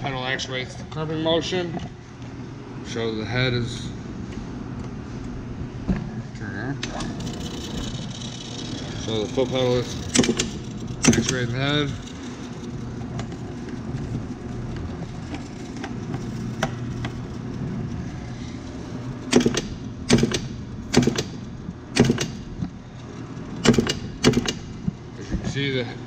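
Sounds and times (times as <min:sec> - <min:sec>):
electric motor humming: 0:06.9 - 0:25.1.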